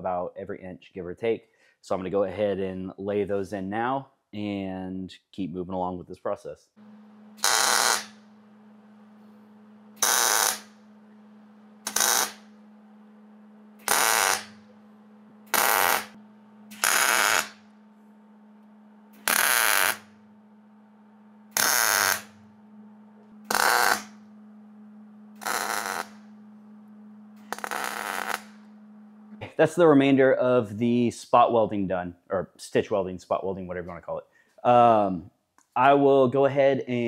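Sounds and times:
welding arc crackle: 6.8s - 12.8s, 13.6s - 20.3s, 21.4s - 22.6s, 23.2s - 24.3s, 25.3s - 26.7s, 27.3s - 29.4s
steady low hum: 6.8s - 32.0s.

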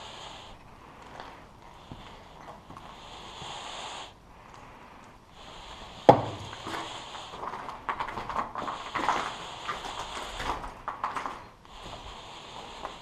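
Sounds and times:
footsteps crunching on debris: 6.1s - 12.2s.

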